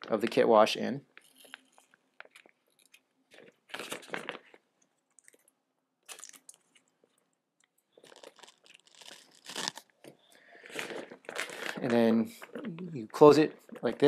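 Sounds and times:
plastic bag crinkling: 1.1s - 7.2s, 8.0s - 14.0s.

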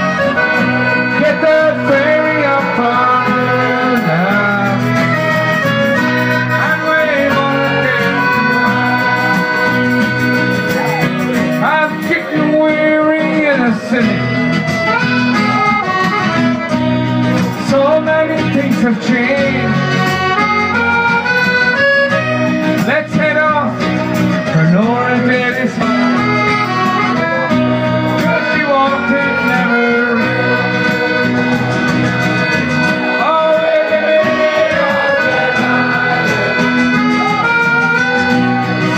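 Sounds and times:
person singing: 0.0s - 14.4s, 24.4s - 31.8s, 32.9s - 38.9s
piano accordion: 0.0s - 38.9s
strummed acoustic guitar: 0.0s - 38.9s.

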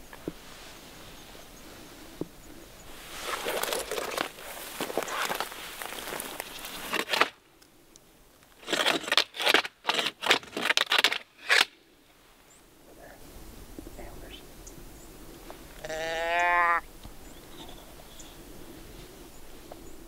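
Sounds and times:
crinkling rustling: 2.9s - 7.4s.

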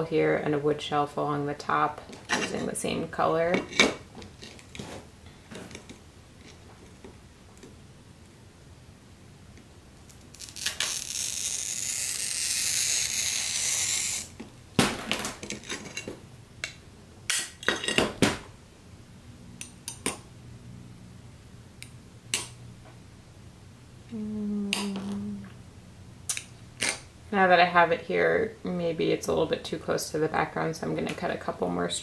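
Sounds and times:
glass snapping with a crack: 10.1s - 12.6s
glass cutter scoring glass: 10.5s - 14.4s.

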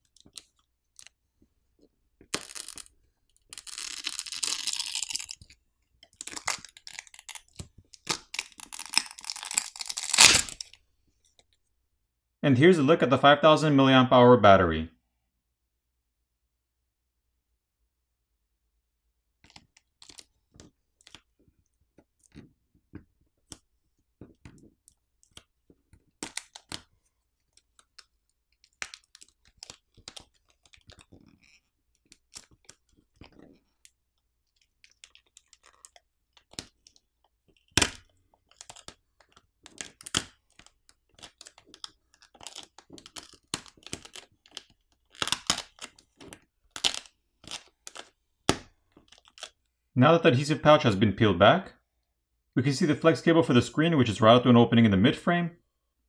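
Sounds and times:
plastic film peeling and crackling: 0.0s - 1.2s, 2.2s - 10.8s, 19.4s - 22.5s, 23.4s - 49.7s.

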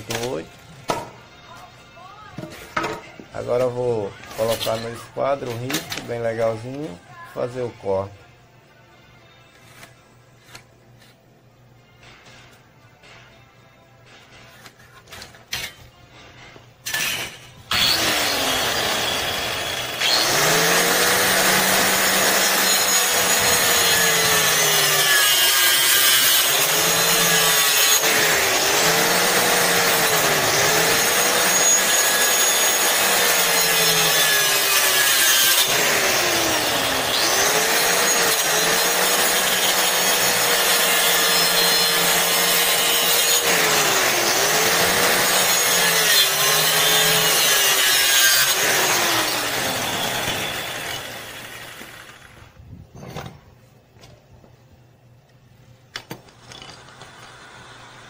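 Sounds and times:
circular saw cutting wood: 16.9s - 52.4s.

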